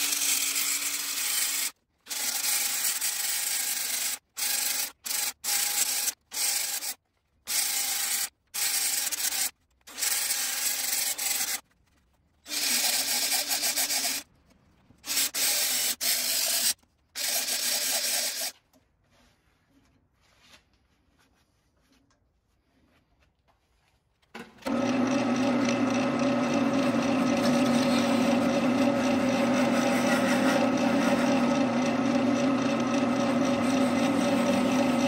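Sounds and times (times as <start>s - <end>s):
sanding wheel grinding wood: 0.0s - 11.7s, 12.5s - 14.3s, 15.0s - 18.5s, 24.7s - 35.0s.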